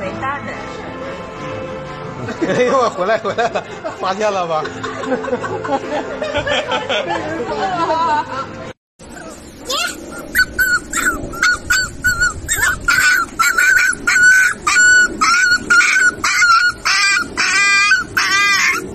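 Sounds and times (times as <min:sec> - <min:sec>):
puppies yelping: 0:09.1 - 0:18.9.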